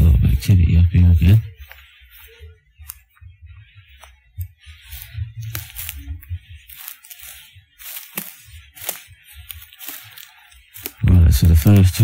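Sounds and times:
handheld camera rumble: 0:00.0 - 0:12.0
footsteps crunching dry leaves: 0:03.9 - 0:12.0
twigs snapping underfoot: 0:04.0 - 0:12.0.

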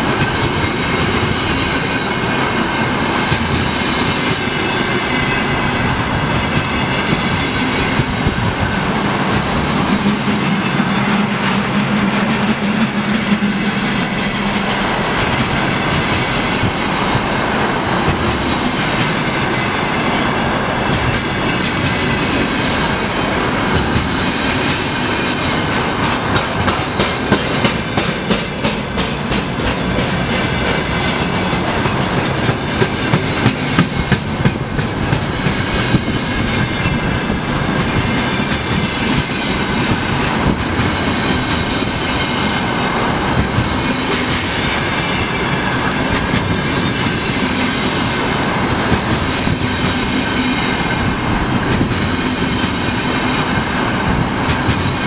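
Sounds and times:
train wheels rumbling on rails: 0:00.0 - 0:55.0
wheels clicking over rail joints: 0:20.8 - 0:55.0.

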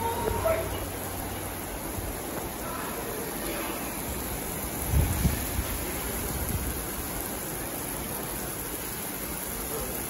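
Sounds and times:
heavy rain on concrete: 0:00.0 - 0:10.0.

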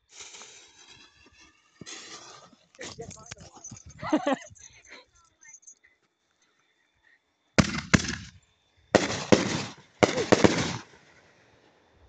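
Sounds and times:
fireworks bursting: 0:00.0 - 0:03.6, 0:07.6 - 0:11.5.

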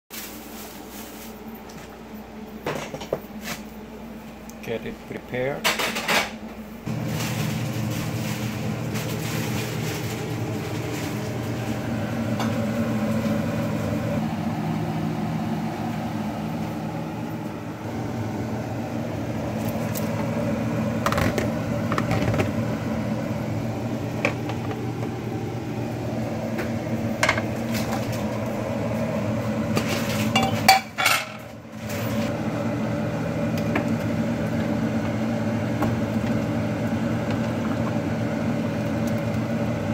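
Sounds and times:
motor humming: 0:06.9 - 0:30.3, 0:31.6 - 0:39.9
cookware clinking: 0:30.3 - 0:31.5.

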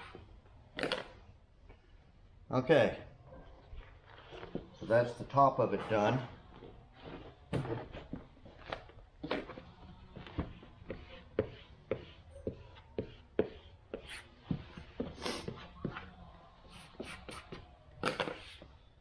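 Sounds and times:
rubbing scrape: 0:04.0 - 0:16.1, 0:16.7 - 0:18.6.

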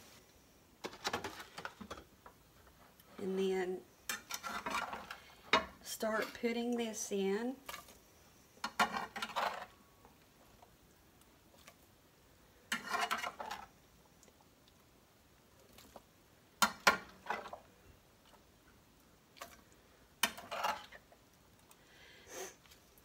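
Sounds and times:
metal spoon scraping a skillet: 0:04.1 - 0:06.6, 0:08.6 - 0:09.8, 0:12.7 - 0:13.7, 0:20.2 - 0:21.0.

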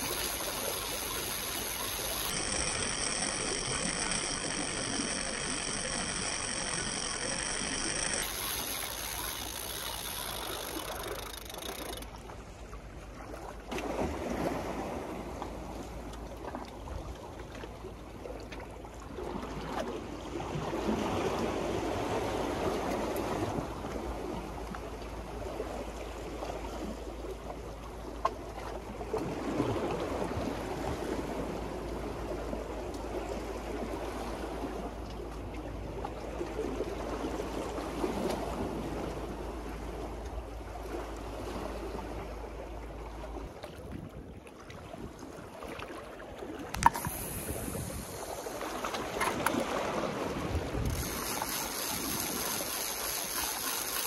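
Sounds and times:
low hum: 0:00.0 - 0:12.1
sharp click: 0:00.0 - 0:12.1, 0:46.8 - 0:49.6
waves lapping against a seawall: 0:00.0 - 0:54.0
wind: 0:00.0 - 0:54.0.

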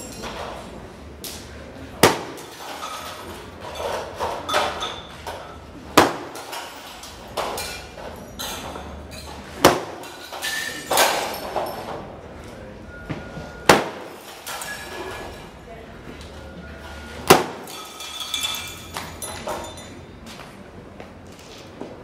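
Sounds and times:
glass shards tinkling: 0:02.4 - 0:05.6, 0:06.4 - 0:09.4, 0:10.0 - 0:12.0, 0:14.1 - 0:15.5, 0:17.6 - 0:20.1
glass tubes cracking: 0:17.3 - 0:19.3.

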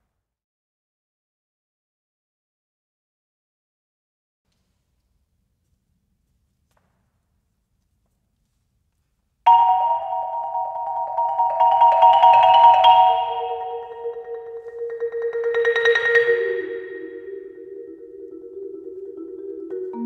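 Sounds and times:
low marimba note ringing: 0:09.5 - 0:20.0
marimba fast mallet strokes: 0:09.5 - 0:20.0.

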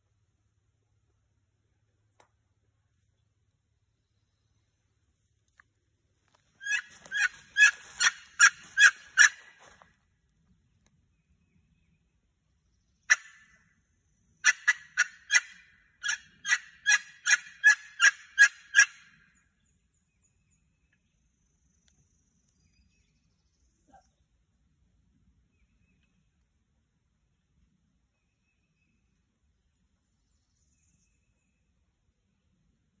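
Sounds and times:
turkey yelps: 0:06.6 - 0:09.5, 0:14.4 - 0:19.0.

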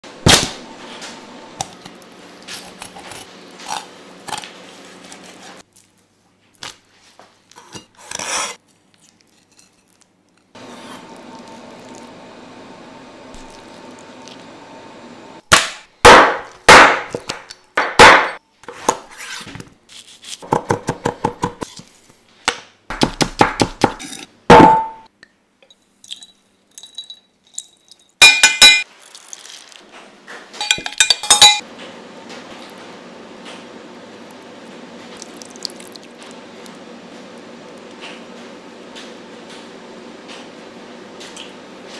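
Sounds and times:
knife chopping on wooden board: 0:22.9 - 0:25.0
glass bowl clinking: 0:26.1 - 0:28.9, 0:30.6 - 0:31.6.

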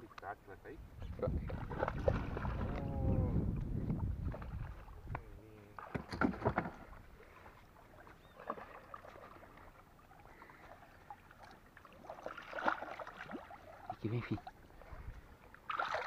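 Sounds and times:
fish splashing in river water: 0:01.6 - 0:02.8, 0:05.8 - 0:13.9, 0:15.6 - 0:16.0.

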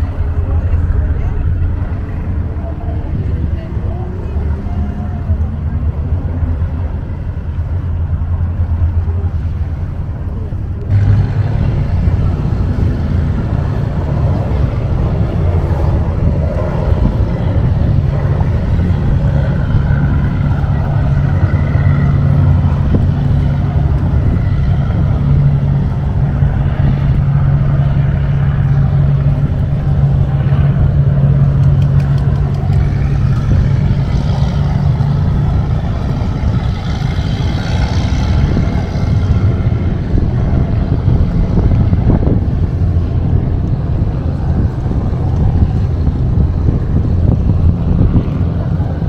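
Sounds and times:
boat engine running: 0:00.0 - 0:49.0
rushing noise: 0:00.0 - 0:49.0.

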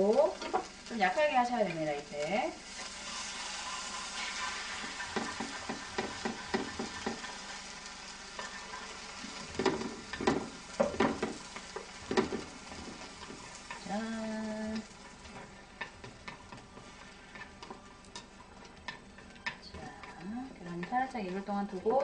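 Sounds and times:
egg sizzling in a frying pan: 0:00.0 - 0:22.0
chopsticks knocking and scraping pan: 0:04.2 - 0:07.4, 0:08.4 - 0:22.0.

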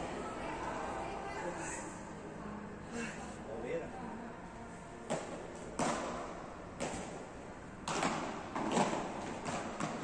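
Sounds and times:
rackets striking ball: 0:05.0 - 0:10.0.

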